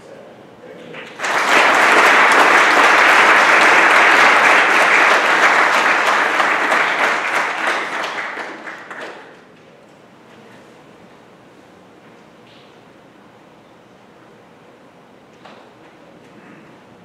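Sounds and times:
audience applauding: 1.0s - 9.5s.

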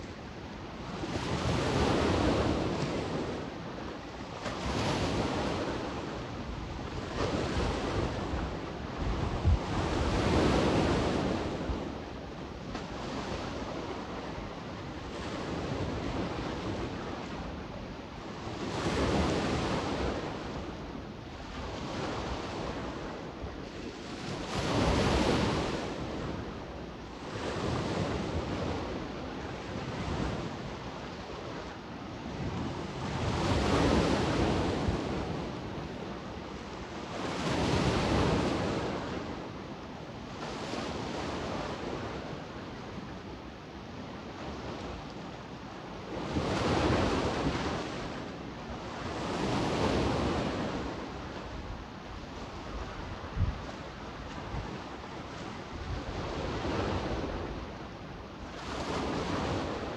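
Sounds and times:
sea waves breaking: 0.0s - 59.9s
wind on microphone: 0.0s - 59.9s.

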